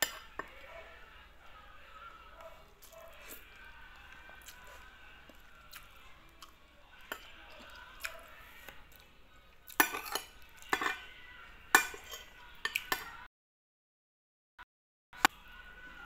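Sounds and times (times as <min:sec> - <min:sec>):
cutlery clinking on a plate: 0:00.0 - 0:00.6, 0:09.7 - 0:11.1, 0:11.7 - 0:13.2.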